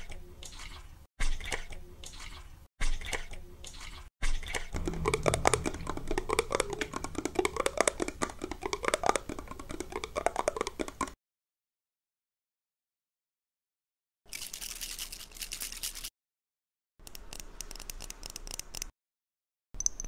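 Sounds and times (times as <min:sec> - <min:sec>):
low rumble: 0:04.8 - 0:09.9.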